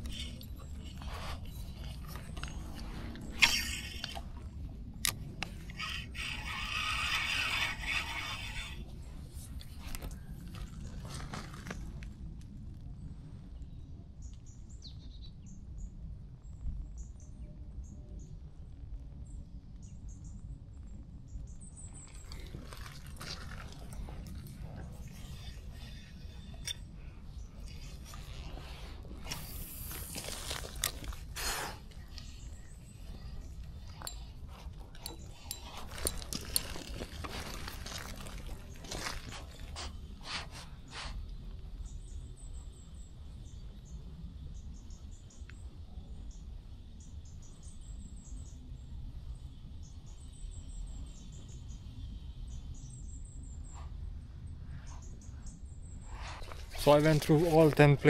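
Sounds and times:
small birds chirping: 0.0s - 11.9s, 19.2s - 58.0s
steady low rumble: 0.0s - 58.0s
fishing reel clicking: 5.0s - 8.8s.

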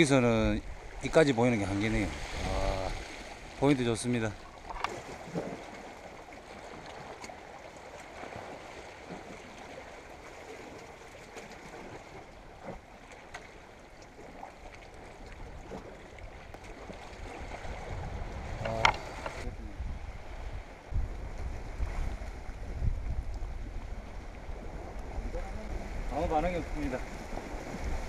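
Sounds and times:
seawater lapping against rocks: 0.0s - 28.0s.

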